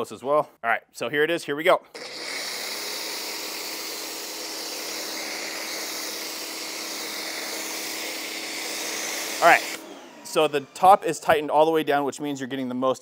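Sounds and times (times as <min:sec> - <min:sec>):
pressure washer foam spray hiss: 0:02.4 - 0:09.8.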